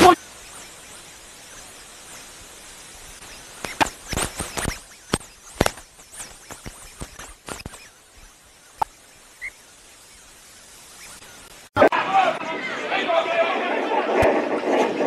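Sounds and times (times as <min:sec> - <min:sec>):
outdoor background noise: 0:00.0 - 0:15.0
sharp irregular knocks and cracks: 0:03.6 - 0:07.8.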